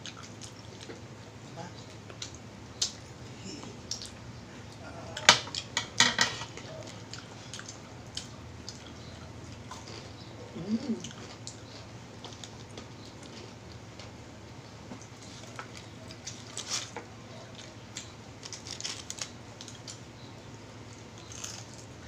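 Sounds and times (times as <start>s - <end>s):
chewing: 0.0s - 1.0s, 6.5s - 14.2s, 14.9s - 20.0s, 20.8s - 22.0s
hands tearing chicken: 15.2s - 20.0s, 21.2s - 21.9s.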